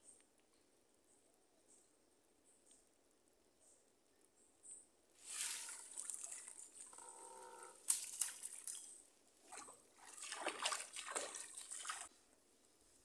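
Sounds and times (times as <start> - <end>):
water splashing in mud pool: 5.2 - 7.1, 7.8 - 12.1
water running over mud: 5.2 - 12.1.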